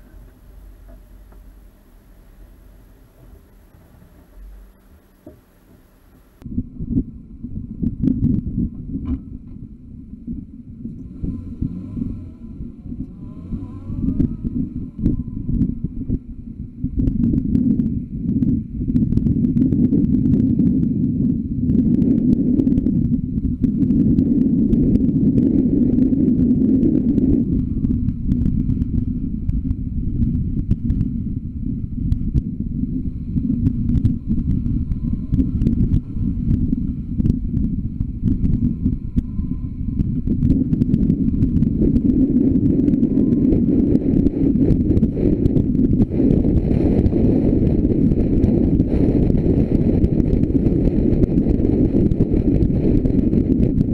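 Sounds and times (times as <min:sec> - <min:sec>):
road hiss: 0:00.0 - 0:06.4
muffled car driving rumble: 0:00.0 - 0:53.9.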